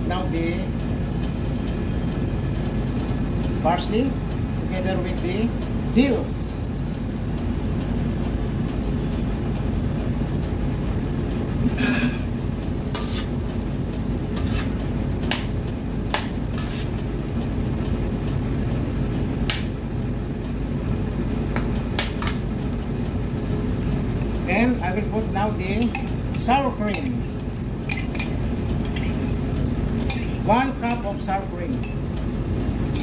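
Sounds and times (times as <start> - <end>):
steady low hum: 0.0 - 33.0
metal spoon clinking on pan: 25.8 - 26.2, 26.9 - 27.2, 27.9 - 29.3, 30.0 - 31.2, 31.8 - 32.0.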